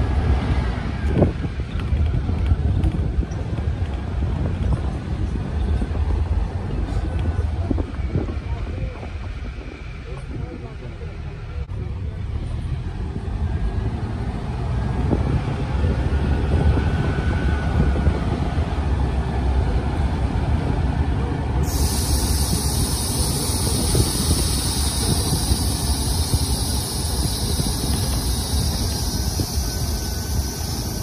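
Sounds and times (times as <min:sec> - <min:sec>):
car engine rumble: 0:00.0 - 0:31.0
steady high hiss: 0:21.6 - 0:31.0.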